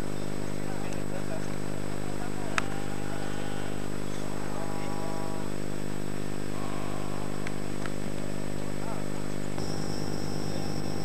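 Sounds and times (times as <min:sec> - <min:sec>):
motor drone: 0:02.5 - 0:07.8, 0:09.6 - 0:11.0.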